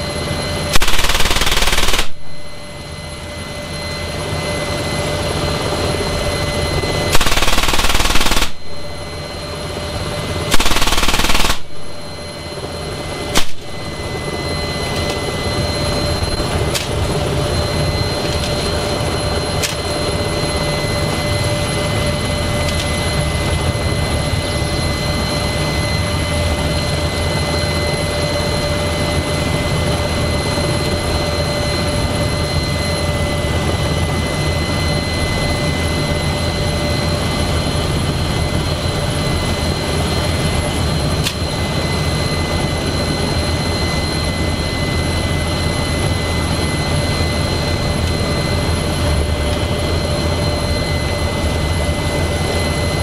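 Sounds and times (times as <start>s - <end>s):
helicopter turbine and rotor: 0.0s - 53.0s
machine gun bursts: 0.8s - 2.2s, 7.2s - 8.6s, 10.5s - 11.8s.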